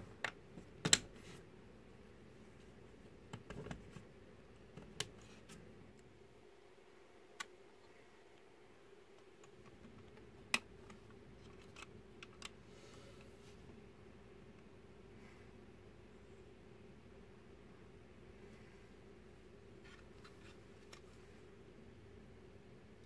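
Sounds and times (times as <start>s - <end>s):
plastic parts clicking and tapping: 3.3s - 4.0s, 9.1s - 12.6s.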